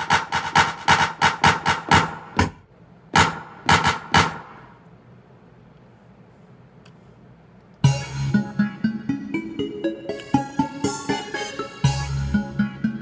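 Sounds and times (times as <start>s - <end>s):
drum sample hits: 0.0s - 2.6s, 3.2s - 4.6s
melodic part with bass: 7.8s - 13.0s.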